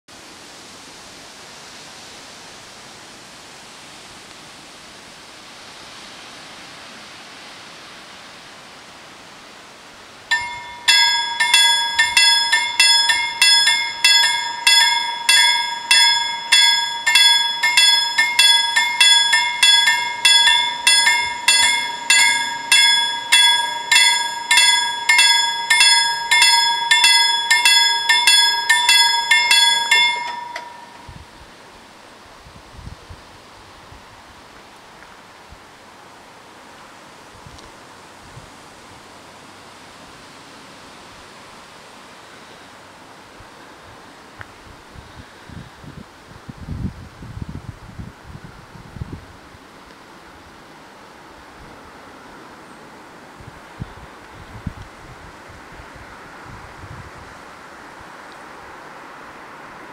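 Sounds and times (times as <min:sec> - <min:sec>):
faint steady hiss: 0:00.1 - 0:59.9
level crossing warning bells: 0:10.3 - 0:31.6.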